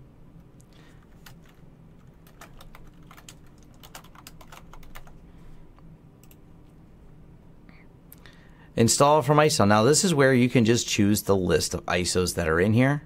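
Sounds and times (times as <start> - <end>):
faint low hum: 0.0 - 13.0
typing on keyboard: 1.1 - 5.2.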